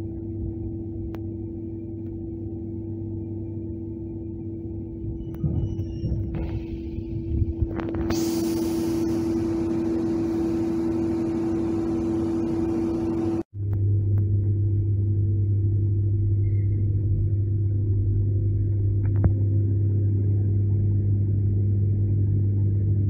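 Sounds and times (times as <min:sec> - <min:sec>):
rumble of running train: 0:05.0 - 0:08.3.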